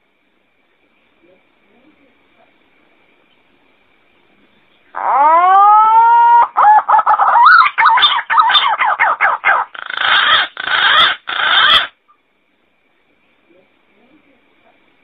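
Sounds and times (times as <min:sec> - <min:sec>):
harsh bird notes: 0:05.0 - 0:11.9
pigeon whistling call: 0:05.4 - 0:11.9.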